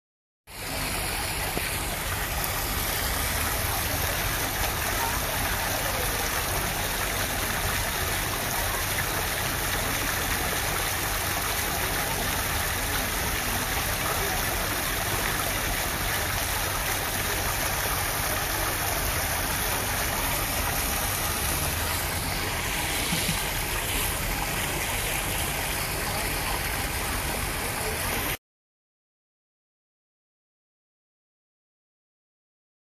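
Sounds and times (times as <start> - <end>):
waterfall rushing: 0.5 - 10.0, 12.9 - 28.3.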